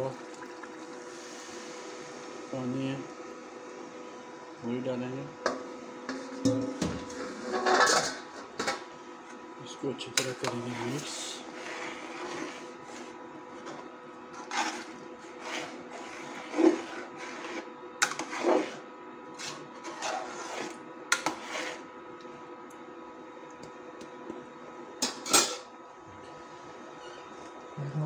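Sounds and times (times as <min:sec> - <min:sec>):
faint cooktop hum: 0:00.0 - 0:28.0
metal ladle scraping a pot: 0:06.1 - 0:08.2, 0:10.4 - 0:13.2, 0:14.3 - 0:21.8.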